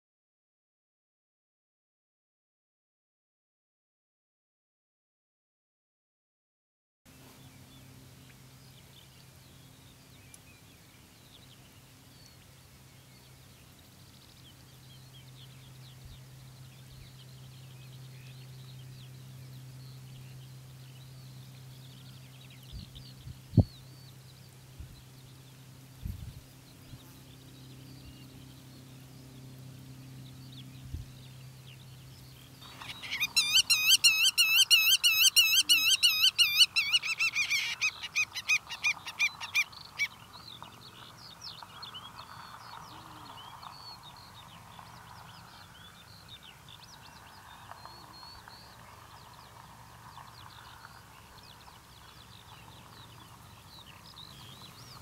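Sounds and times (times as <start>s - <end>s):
godwit calling rapid notes: 32.6s - 40.1s
faint bird calls: 32.6s - 55.0s.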